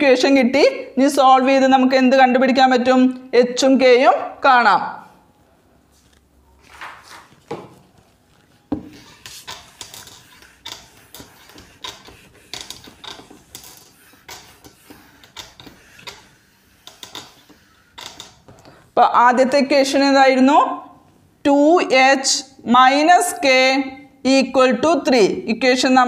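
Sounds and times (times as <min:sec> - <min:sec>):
eraser wiping a whiteboard: 0:07.0 - 0:18.6.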